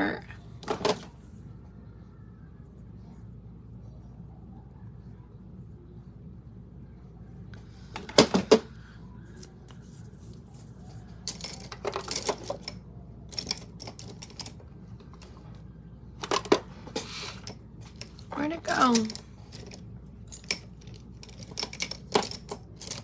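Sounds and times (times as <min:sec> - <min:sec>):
makeup containers clattering: 0:11.3 - 0:12.8.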